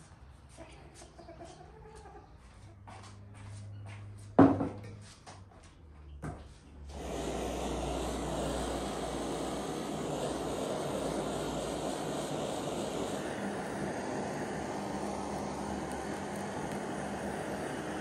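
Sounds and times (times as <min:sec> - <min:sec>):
blowtorch flame hissing: 0:06.9 - 0:18.0.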